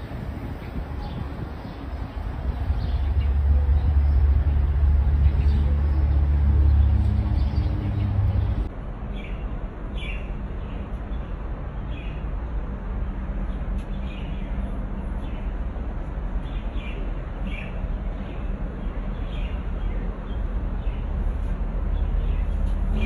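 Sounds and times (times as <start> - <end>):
low background rumble: 0.0 - 10.0
small birds chirping: 0.5 - 12.2, 16.4 - 21.2.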